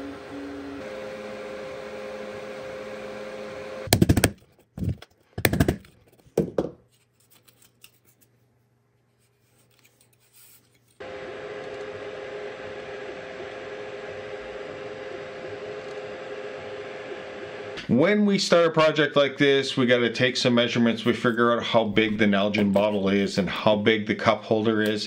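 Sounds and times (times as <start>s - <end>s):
printer humming: 0.0s - 3.9s, 11.0s - 18.0s.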